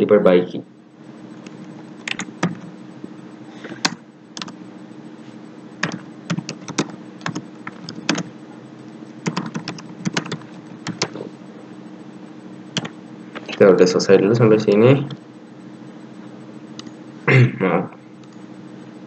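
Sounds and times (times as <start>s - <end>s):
keyboard typing clicks: 1.4s - 2.7s, 3.8s - 4.6s, 5.8s - 8.3s, 9.2s - 11.2s, 12.8s - 13.6s, 14.7s - 15.2s.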